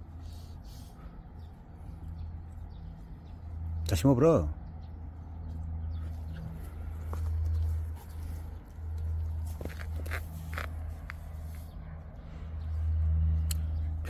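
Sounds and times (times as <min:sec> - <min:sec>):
hands digging in soil: 0:06.6 - 0:11.8.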